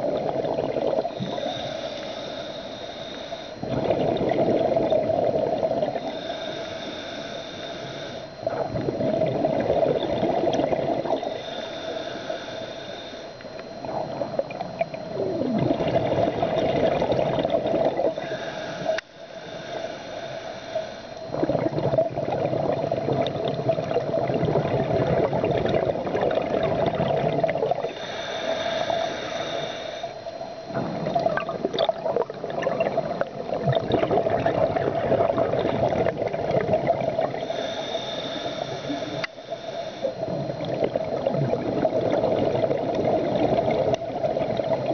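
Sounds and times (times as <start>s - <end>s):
exhaled bubbles burbling: 0.0s - 1.7s, 3.6s - 6.1s, 8.4s - 11.4s, 13.5s - 18.2s, 21.3s - 28.0s, 30.6s - 37.7s, 40.0s - 44.9s
regulator hissing inhale: 1.0s - 3.8s, 4.6s - 8.5s, 10.9s - 14.2s, 18.0s - 21.4s, 27.8s - 31.0s, 37.2s - 41.0s.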